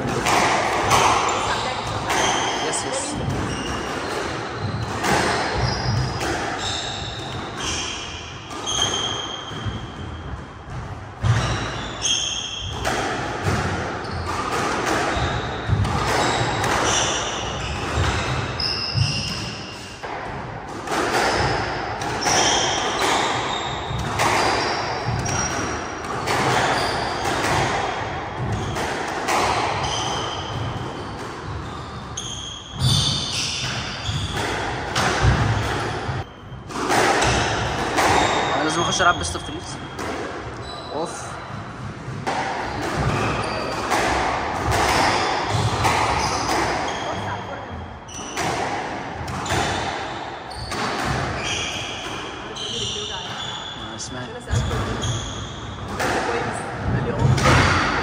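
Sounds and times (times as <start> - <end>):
squash ball striking rackets and walls: 0.0 - 40.7, 41.4 - 53.8, 54.4 - 58.0
shoes squeaking on wooden floor: 0.8 - 10.2, 22.2 - 27.3, 28.4 - 36.7, 42.7 - 43.8, 45.1 - 48.4, 50.4 - 57.5.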